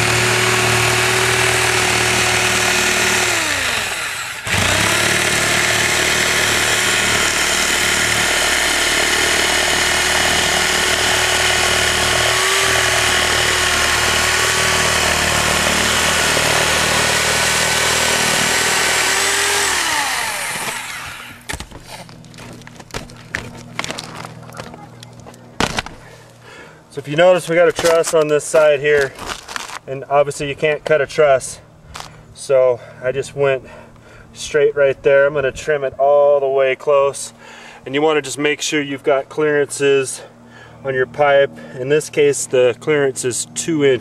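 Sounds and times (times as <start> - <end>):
reciprocating saw cutting roof: 0.0 - 22.1.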